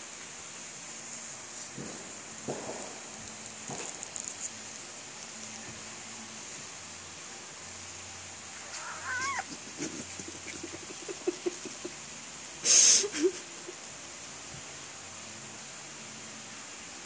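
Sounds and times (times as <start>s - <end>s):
cat mewing: 8.6s - 10.8s
cat hissing: 8.6s - 11.9s.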